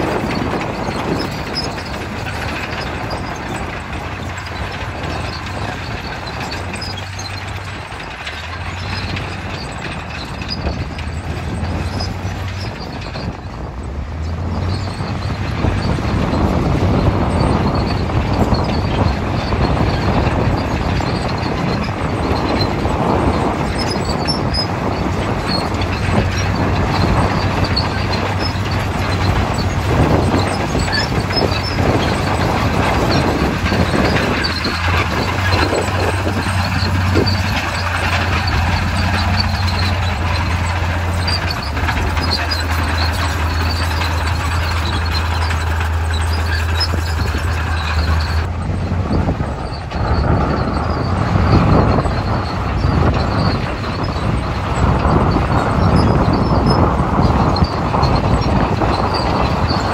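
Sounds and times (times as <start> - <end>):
bulldozer engine droning: 0.0 - 59.9
steel tracks rattling: 0.0 - 59.9.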